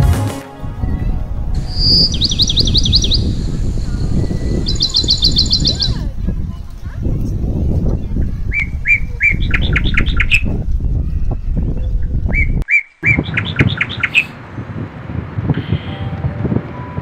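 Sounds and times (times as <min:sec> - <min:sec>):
steady low rumble: 0:00.6 - 0:16.8
bird chirping: 0:01.6 - 0:06.1, 0:07.8 - 0:10.5, 0:11.6 - 0:14.4.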